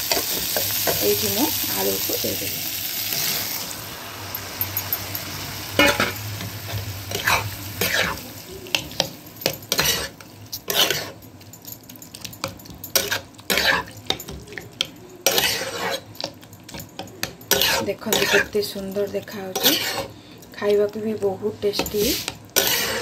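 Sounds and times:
pan sizzling: 0.0 - 23.0
spatula scraping frying pan: 5.7 - 11.2, 12.9 - 14.4, 15.2 - 16.3, 17.4 - 20.2, 21.8 - 23.0.

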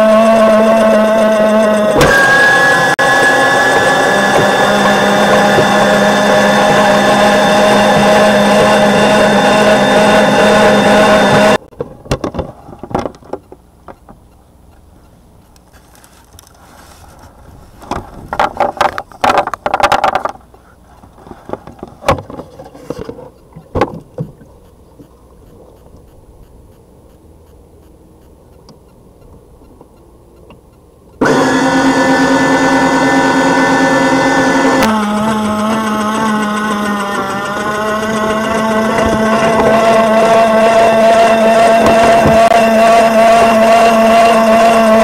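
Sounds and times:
electric propeller motors whining: 0.0 - 11.7, 31.2 - 45.0
knocks and rattles of handling: 15.7 - 24.6.

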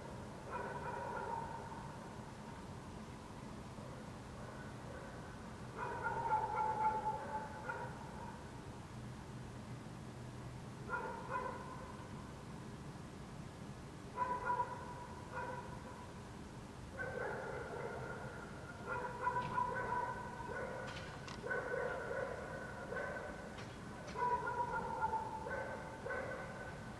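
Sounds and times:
dogs barking: 0.5 - 1.8, 5.8 - 8.4, 10.9 - 11.9, 14.2 - 15.8, 17.0 - 26.9.

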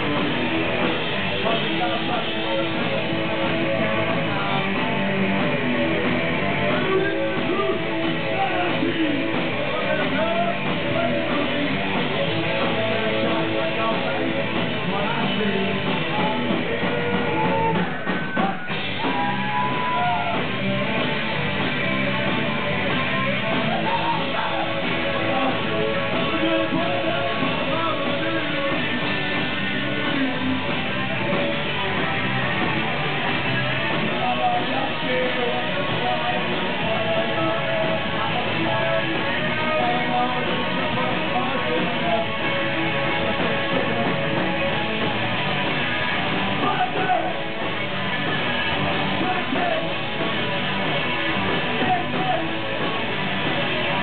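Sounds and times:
bass guitar: 0.0 - 54.0
drum kit: 0.0 - 54.0
electric guitar: 0.0 - 54.0
person singing: 6.4 - 20.5, 32.9 - 44.3.

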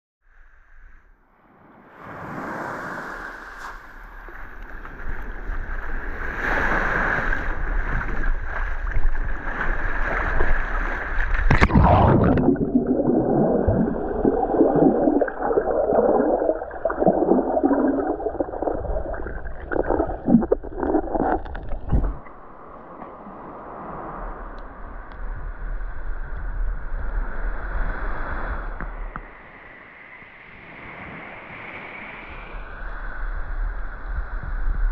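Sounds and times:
sea water splashing: 2.0 - 25.0
muffled underwater sloshing: 4.2 - 27.1.

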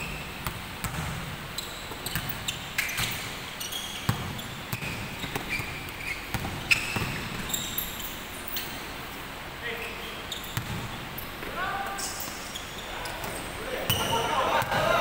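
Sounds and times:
sneakers squeaking on floor: 0.0 - 15.0
basketball bouncing on hardwood: 6.3 - 7.4, 10.6 - 10.9.

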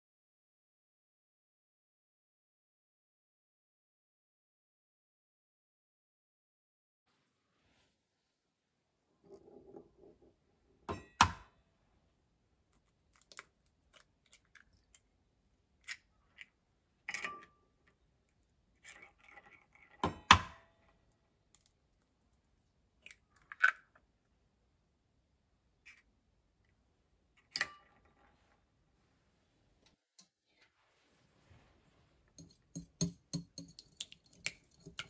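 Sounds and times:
eggshell tapping: 32.4 - 35.0
glass and eggshell clinking: 32.4 - 35.0.

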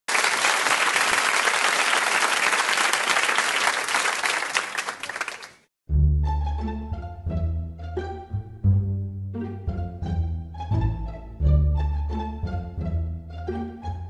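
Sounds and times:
crowd applauding: 0.1 - 5.7.

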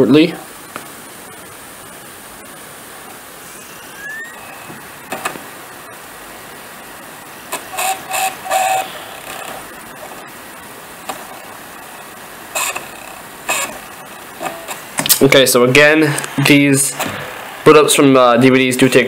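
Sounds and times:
optical drive whirring: 0.6 - 15.3.

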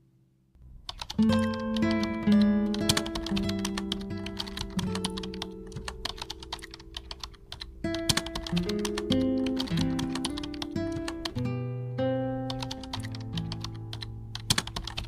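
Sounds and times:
computer keyboard typing clicks: 0.9 - 11.4, 12.5 - 15.0
background music of held notes: 1.2 - 7.2.

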